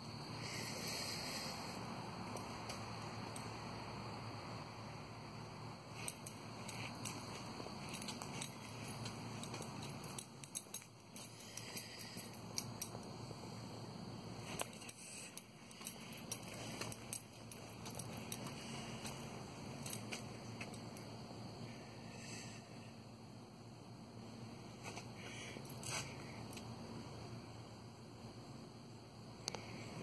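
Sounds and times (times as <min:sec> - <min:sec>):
low background noise: 0:00.0 - 0:30.0
sharp clicks and ticks: 0:06.0 - 0:13.1.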